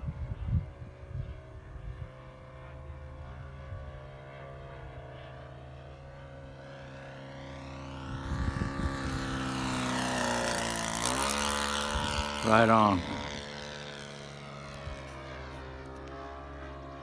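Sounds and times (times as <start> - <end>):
wind buffeting microphone: 0.0 - 2.3, 7.8 - 13.3
model plane engine running: 0.0 - 17.0.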